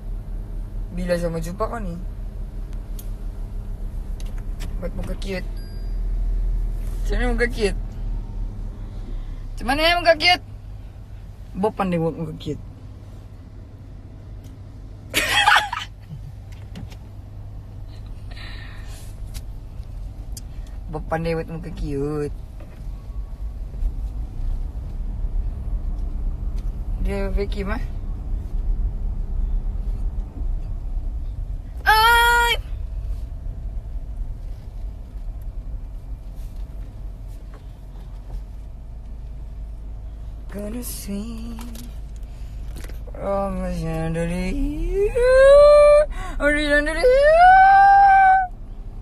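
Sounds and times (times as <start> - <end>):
car cabin hum: 0.0 - 49.0
faint rustles: 32.8 - 39.3.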